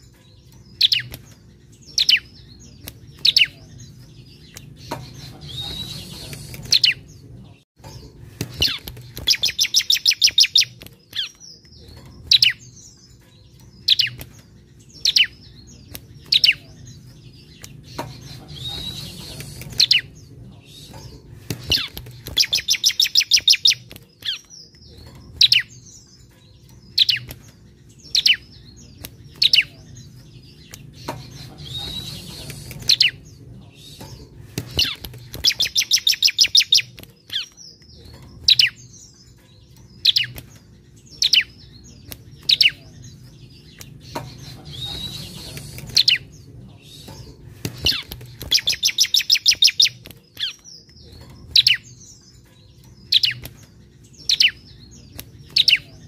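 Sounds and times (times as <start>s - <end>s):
bird trills and rattles: 0.0s - 56.0s.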